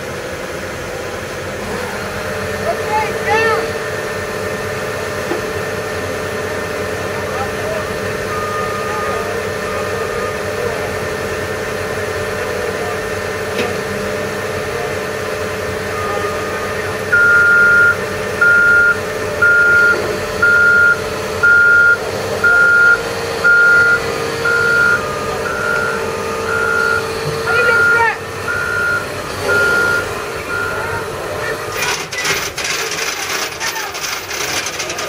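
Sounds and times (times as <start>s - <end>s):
diesel engine running: 0.0s - 35.0s
reversing alarm beeping: 8.2s - 11.5s, 15.8s - 32.4s.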